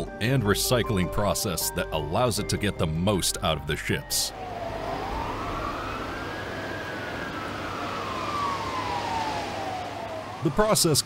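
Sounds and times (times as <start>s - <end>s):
steady background hiss: 3.9s - 11.0s
siren wailing: 4.2s - 11.0s.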